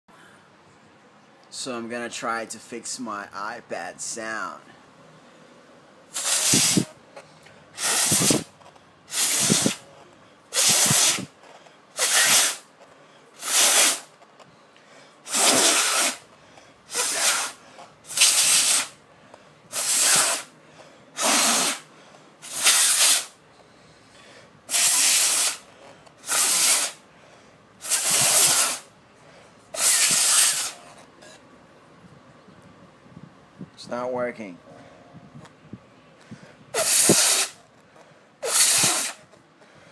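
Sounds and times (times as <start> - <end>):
short hissing air blasts: 6.1 - 7.0, 7.7 - 8.5, 9.1 - 9.8, 10.5 - 12.7, 13.4 - 14.1, 15.2 - 16.3, 16.9 - 19.0, 19.7 - 20.6, 21.2 - 23.4, 24.6 - 27.0, 27.8 - 28.9, 29.7 - 30.8, 36.7 - 37.6, 38.4 - 39.3.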